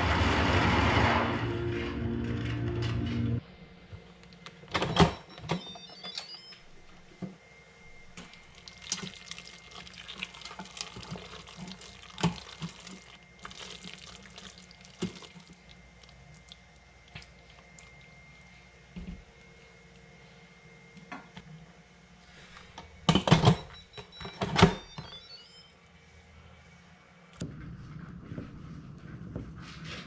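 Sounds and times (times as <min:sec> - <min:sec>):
spatula stirring sticky food: 0:08.6 - 0:16.6.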